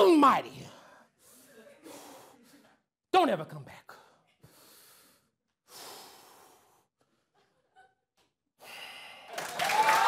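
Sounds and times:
breathy exhale: 8.6s - 9.3s
audience applause: 9.2s - 10.0s.

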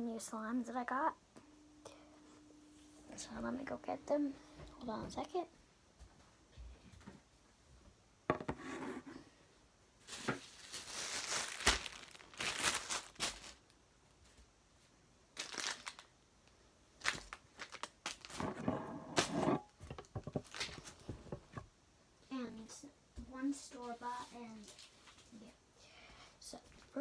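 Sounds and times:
rustling and crinkling: 10.0s - 14.4s, 17.0s - 21.6s, 23.8s - 25.6s.

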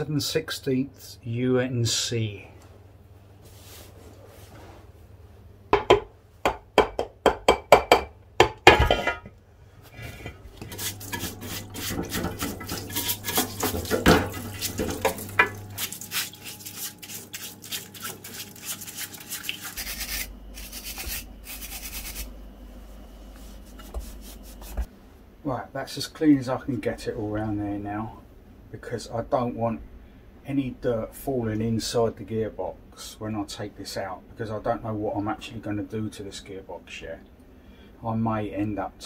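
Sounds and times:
stiff brush scrubbing metal: 10.0s - 22.3s.

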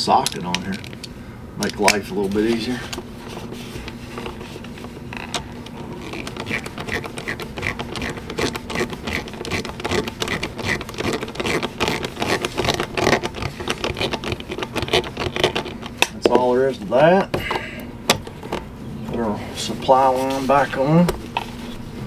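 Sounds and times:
low steady hum: 0.0s - 22.0s
rapid ratcheting clicks: 6.0s - 16.1s.

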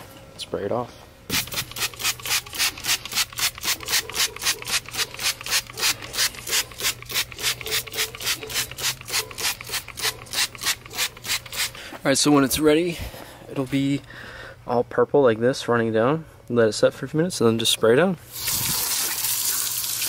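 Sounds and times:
spray bottle hissing spurts: 1.3s - 11.8s, 18.3s - 20.0s.

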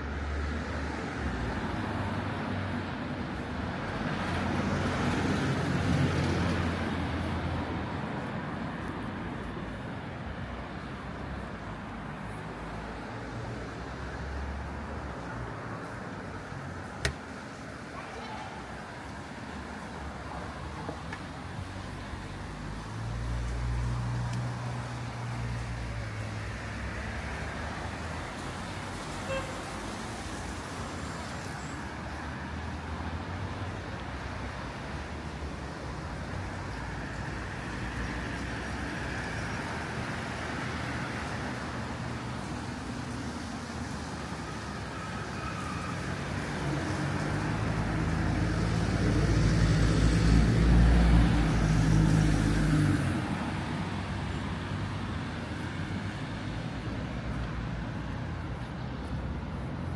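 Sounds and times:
traffic hum: 0.0s - 59.9s
vehicle passing close by: 45.1s - 58.4s.

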